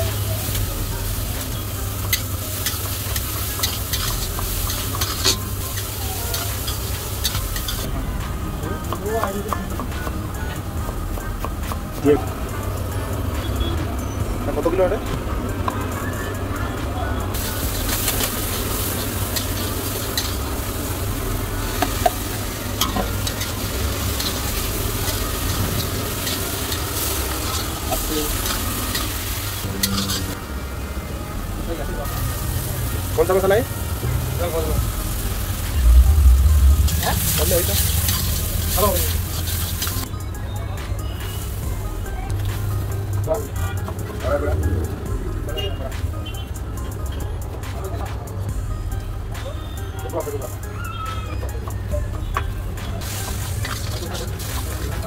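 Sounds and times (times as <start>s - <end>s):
onions sizzling in oil: 0.0s - 7.9s, 17.3s - 30.6s, 32.0s - 40.1s, 53.0s - 55.0s
metal spatula scraping pan: 28.4s - 30.4s
low rumble: 34.0s - 40.0s
steady low hum: 34.9s - 39.2s.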